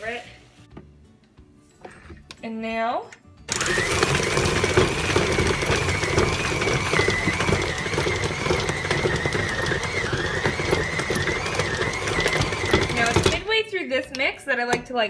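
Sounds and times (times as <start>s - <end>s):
stand mixer motor whine: 3.5s - 13.4s.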